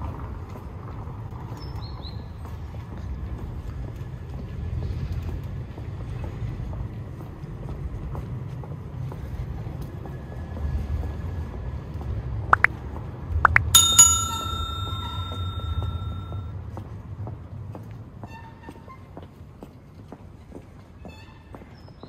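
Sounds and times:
bicycle bell ringing: 13.7 - 16.5.

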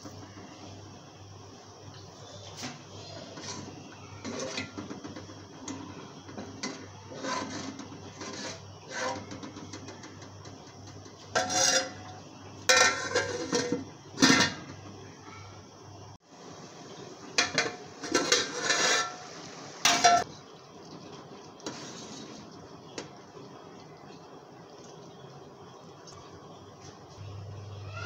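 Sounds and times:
metal lid clanking: 2.6 - 4.9, 11.3 - 14.8, 17.4 - 20.2
ladle scraping a metal pot: 3.2 - 5.2, 6.3 - 10.0, 11.3 - 14.7, 17.4 - 20.3, 21.6 - 22.6.

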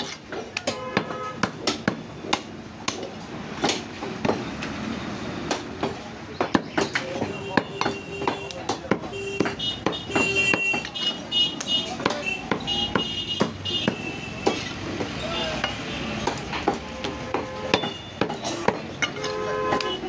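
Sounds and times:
knife chopping on wooden block: 5.5 - 11.1.

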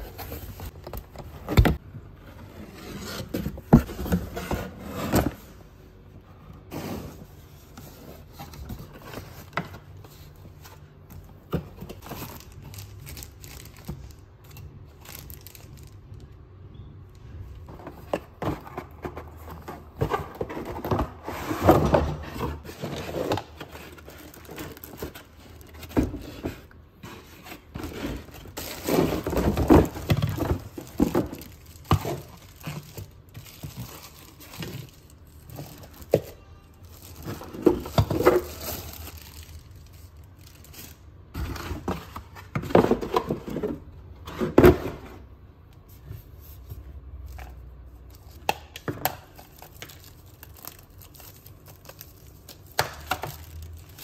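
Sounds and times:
plastic wrapping crinkling: 11.9 - 16.3, 22.6 - 26.4, 27.6 - 41.4, 49.2 - 54.0.

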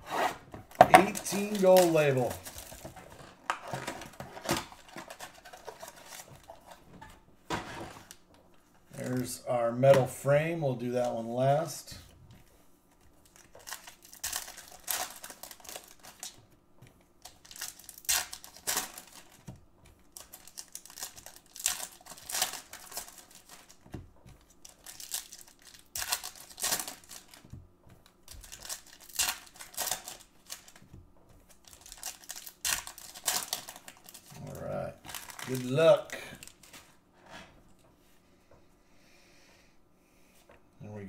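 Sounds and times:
foil wrappers crinkling and tearing: 0.7 - 6.8, 13.2 - 16.4, 17.2 - 37.0.

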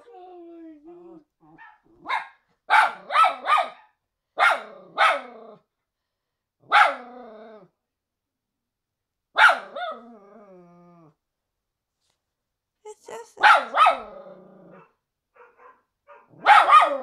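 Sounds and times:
dog barking: 1.5 - 5.4, 6.6 - 7.0, 9.4 - 10.0, 13.4 - 17.0.

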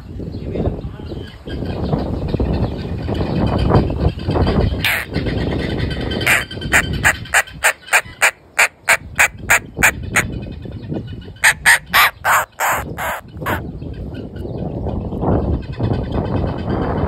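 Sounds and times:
bird giving harsh rasping calls: 4.8 - 5.1, 6.2 - 10.3, 11.4 - 13.6.

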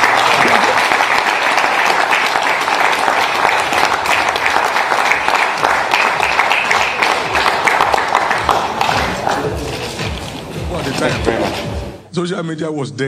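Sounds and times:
crowd applauding: 0.0 - 10.4.

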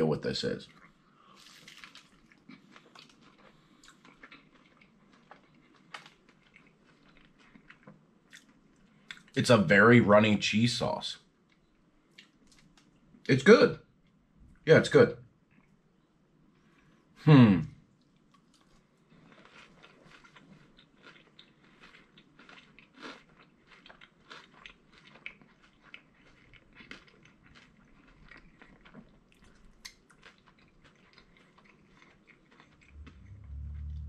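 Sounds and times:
man chewing crunchy food: 0.7 - 9.4, 18.0 - 34.0.

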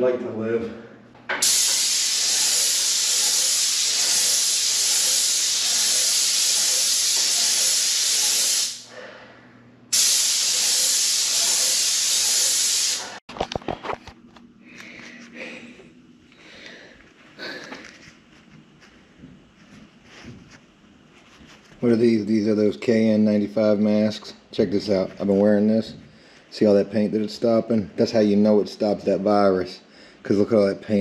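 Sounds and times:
paint sprayer hissing: 1.3 - 8.9, 9.9 - 13.2.

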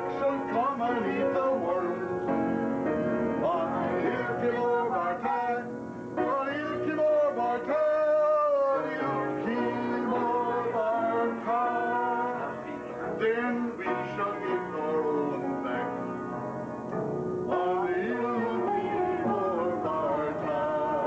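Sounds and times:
piano accompaniment: 0.0 - 21.0
group singing: 3.4 - 5.7, 6.6 - 15.9, 17.5 - 21.0.

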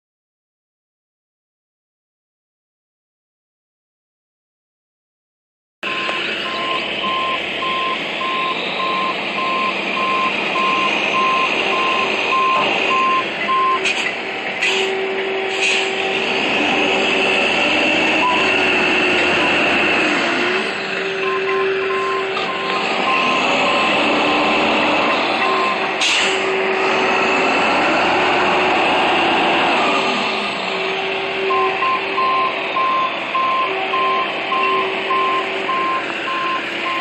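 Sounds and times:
backup alarm beeping: 5.8 - 13.9, 18.1 - 19.8, 21.1 - 26.7, 31.0 - 37.0
diesel engine running under load: 5.8 - 37.0
short air hisses: 13.8 - 14.9, 15.5 - 16.0, 26.0 - 26.4.

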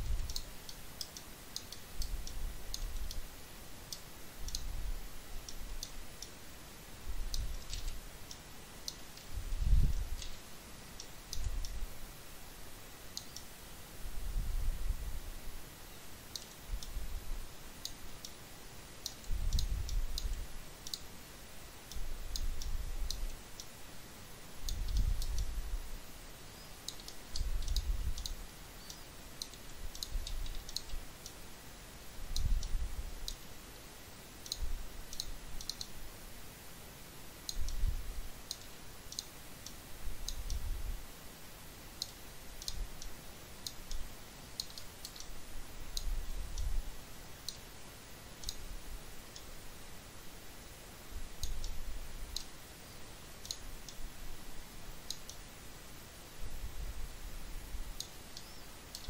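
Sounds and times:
computer mouse clicks: 0.0 - 4.8, 5.4 - 6.4, 7.2 - 11.8, 13.1 - 13.5, 16.3 - 17.0, 19.0 - 21.1, 21.8 - 23.7, 24.6 - 25.6, 26.8 - 31.4, 32.2 - 33.6, 34.4 - 36.0, 37.4 - 40.7, 42.0 - 46.8, 48.3 - 49.6, 51.4 - 52.5, 53.4 - 54.0, 55.0 - 55.4, 57.9 - 59.0.

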